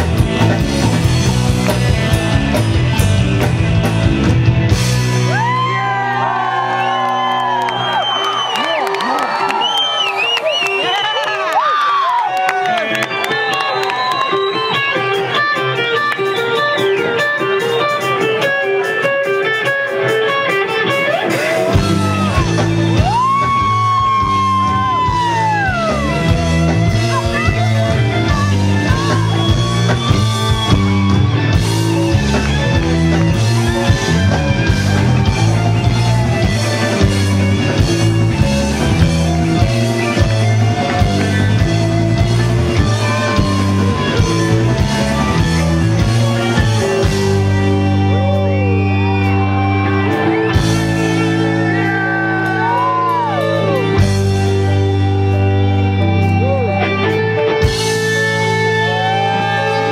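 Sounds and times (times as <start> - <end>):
electric guitar riff: 0.0 - 7.8, 12.6 - 59.9
bass guitar: 0.0 - 8.6, 12.6 - 59.9
drums: 0.0 - 59.9
sliding lead guitar note: 14.9 - 59.9.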